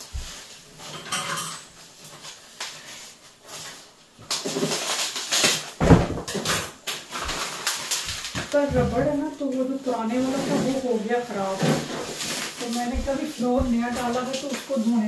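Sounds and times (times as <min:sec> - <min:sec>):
rolled rug thumping on floor: 0:00.0 - 0:00.5, 0:05.8 - 0:06.3, 0:11.6 - 0:14.3
rug and paper label rustling: 0:00.0 - 0:15.0.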